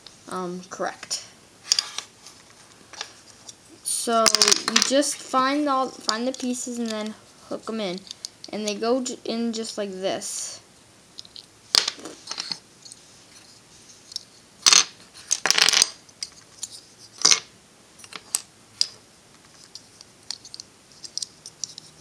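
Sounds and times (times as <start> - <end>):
plastic puzzle pieces clicking: 4.2 - 5.2, 14.1 - 19.0, 19.6 - 22.0.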